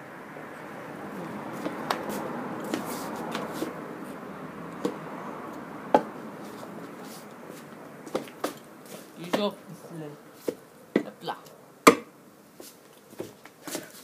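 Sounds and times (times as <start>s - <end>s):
steady background hiss: 0.0s - 14.0s
footsteps on wooden decking: 1.4s - 4.2s, 5.9s - 11.2s, 12.6s - 14.0s.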